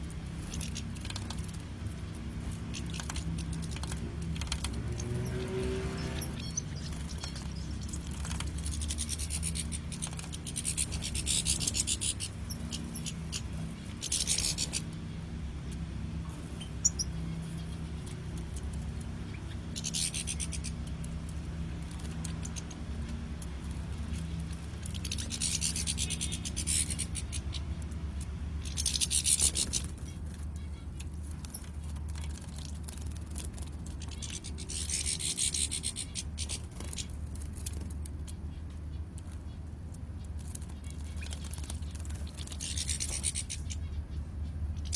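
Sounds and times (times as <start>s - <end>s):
birds wing-fluttering splashes: 0.0s - 14.9s, 16.5s - 38.6s, 39.2s - 43.7s
steady low hum: 0.0s - 44.9s.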